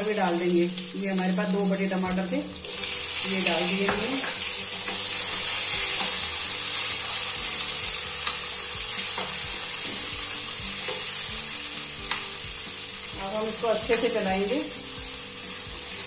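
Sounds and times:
food sizzling in hot oil: 0.0s - 16.0s
spoon scraping and clicking on pan: 12.1s - 12.4s.

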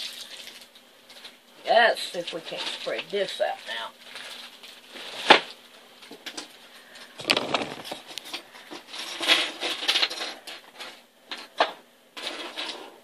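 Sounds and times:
packaging rustling: 2.5s - 8.9s
small parts clattering onto table: 6.2s - 12.8s.

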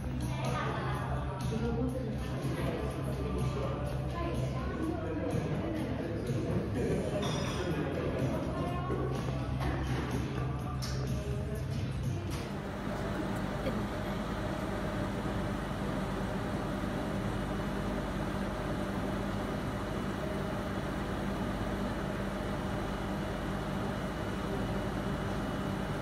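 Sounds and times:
machine hum: 12.3s - 26.0s.

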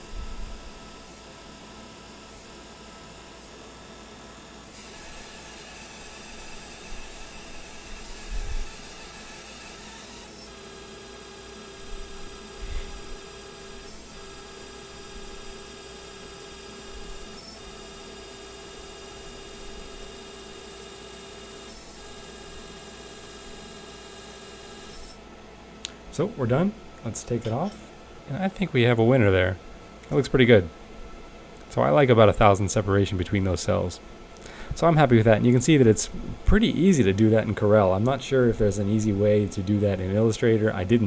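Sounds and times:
laser marker high-pitched buzz: 0.0s - 25.2s.

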